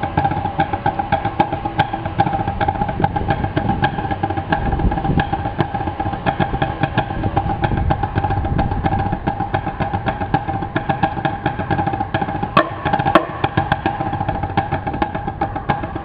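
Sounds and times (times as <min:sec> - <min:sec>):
marching snare drums: 0:00.0 - 0:16.0.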